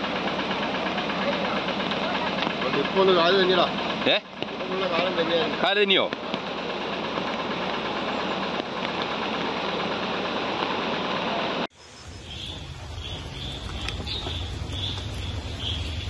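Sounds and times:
roar of rushing floodwater: 8.9 - 16.0.

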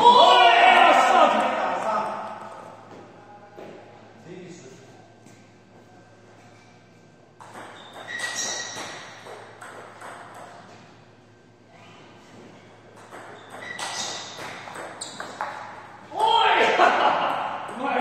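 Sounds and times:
brief high squeak: 7.7 - 9.2, 13.4 - 14.4.

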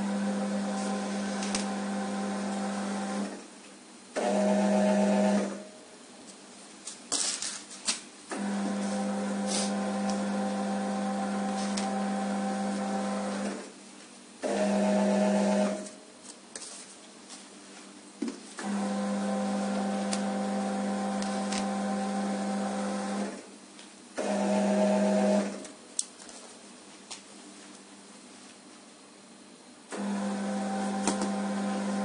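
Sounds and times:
conveyor belt motor humming: 0.0 - 3.4, 8.3 - 13.7, 18.6 - 23.4, 29.9 - 32.0.

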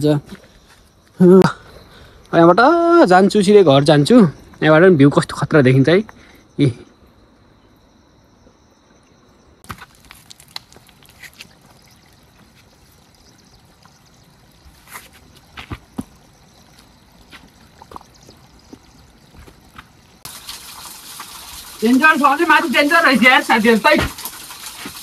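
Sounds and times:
water trickling over rock: 9.6 - 25.0
footsteps: 13.8 - 20.3.

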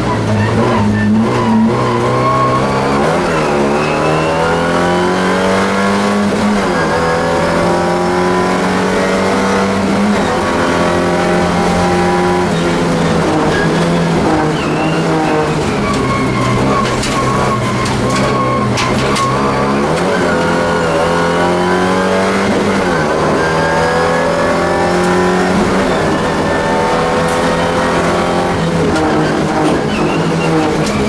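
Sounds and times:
race car engine accelerating: 0.0 - 31.0.

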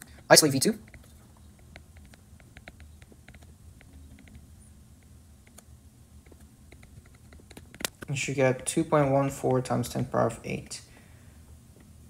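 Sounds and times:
low room hum: 0.0 - 12.0
stylus tapping on tablet screen: 0.8 - 4.4.

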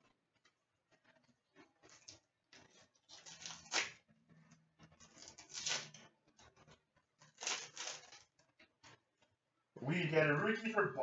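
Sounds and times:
trading cards rustling: 1.6 - 4.1, 4.9 - 8.9.

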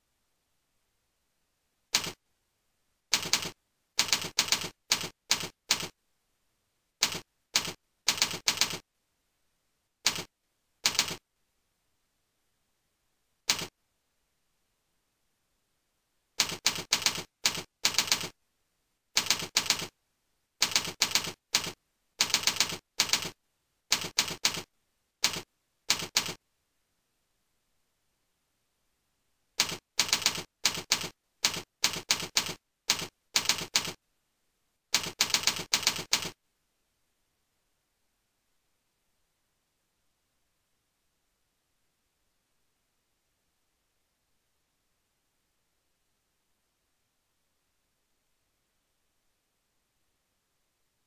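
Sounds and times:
computer keyboard typing: 1.9 - 2.2, 3.1 - 6.0, 7.0 - 8.8, 10.0 - 11.2, 13.5 - 13.7, 16.4 - 18.4, 19.2 - 19.9, 20.6 - 26.4, 29.6 - 34.0, 34.9 - 36.4.

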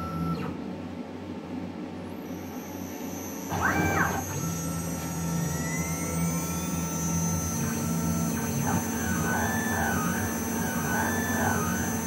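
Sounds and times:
stepper motors whining: 2.2 - 12.0
router spindle whining: 3.0 - 12.0.

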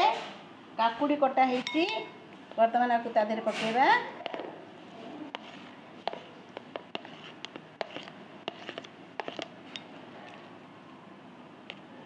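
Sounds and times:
spoon scraping and clicking on plate: 5.3 - 10.4.

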